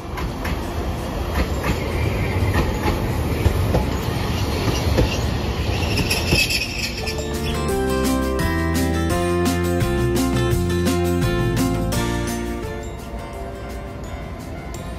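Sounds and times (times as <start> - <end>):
tram rumbling past: 0.0 - 14.9
wheels knocking on track: 1.3 - 6.7
high wheel squeal: 4.0 - 7.7.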